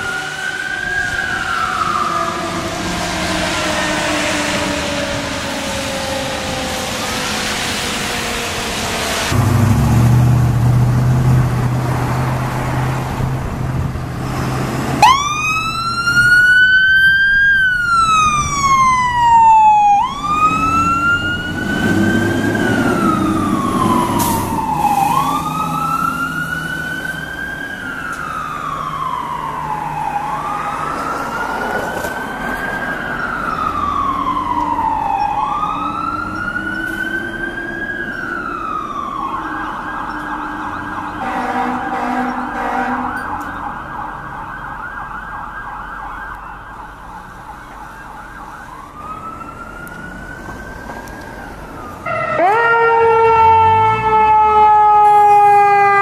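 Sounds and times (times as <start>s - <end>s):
siren wailing: 0.0s - 9.8s, 15.0s - 56.0s
fire truck diesel engine rumbling: 0.0s - 56.0s
tyres hissing on wet road: 2.9s - 15.0s, 21.8s - 26.9s.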